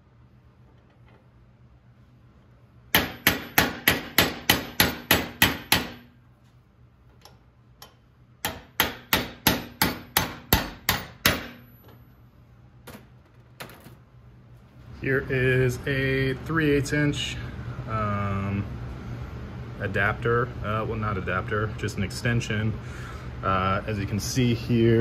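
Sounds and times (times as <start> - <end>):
hammer striking metal: 2.9 - 6.1, 7.8 - 11.7.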